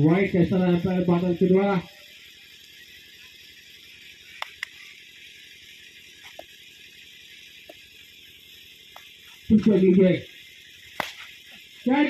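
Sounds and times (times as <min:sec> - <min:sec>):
faint open-air hiss: 0:00.0 - 0:12.0
sharp clicks: 0:04.3 - 0:04.9, 0:10.9 - 0:11.3.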